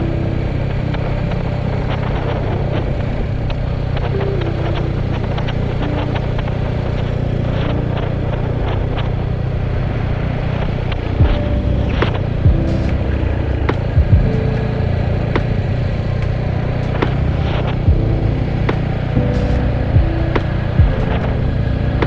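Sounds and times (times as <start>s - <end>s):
wind noise on microphone: 0.0s - 22.0s
sudden low thump: 13.7s - 14.6s, 17.9s - 21.4s.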